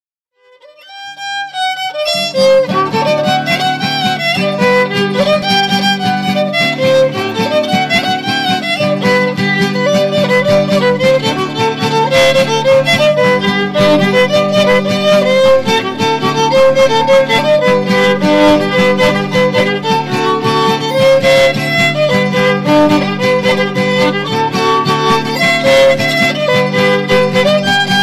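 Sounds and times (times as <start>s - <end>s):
instrumental background music: 0.8s - 28.0s.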